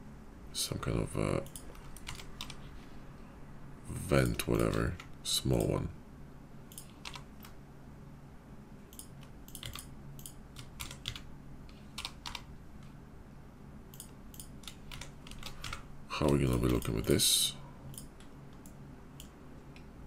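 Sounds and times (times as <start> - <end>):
faint low hum: 0.0 - 20.0
keyboard keystrokes: 1.4 - 2.6, 8.9 - 11.2.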